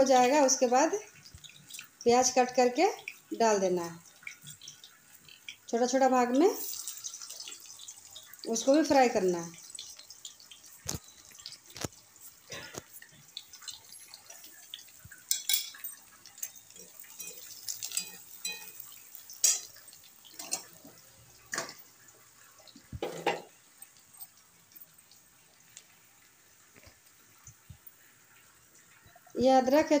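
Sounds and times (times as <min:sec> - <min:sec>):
onion sizzling in oil: 0:00.0 - 0:30.0
spatula scraping a pan: 0:15.3 - 0:19.8.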